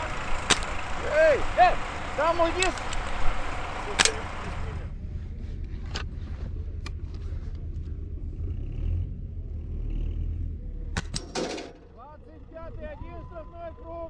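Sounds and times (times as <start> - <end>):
low steady rumble: 0.0 - 14.0
rifle clicks: 4.0 - 4.2.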